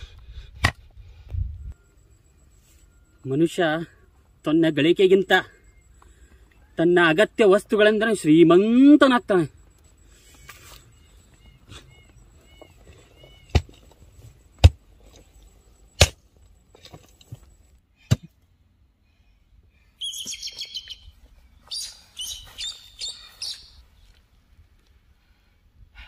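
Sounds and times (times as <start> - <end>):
hoe striking earth: 0.6 - 0.8, 13.4 - 14.0, 14.6 - 15.2, 15.9 - 18.4
birds chirping: 1.7 - 7.2, 8.0 - 16.0, 19.0 - 24.1.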